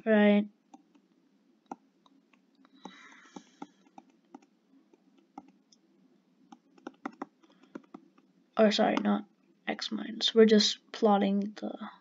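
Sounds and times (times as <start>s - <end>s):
pen tapping on digital whiteboard: 6.5s - 8.3s.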